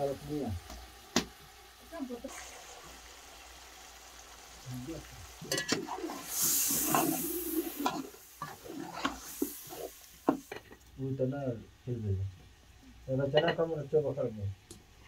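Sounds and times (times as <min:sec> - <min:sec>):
meat sizzling in oil: 0:00.0 - 0:11.0
metal ladle scraping pot: 0:05.5 - 0:10.7.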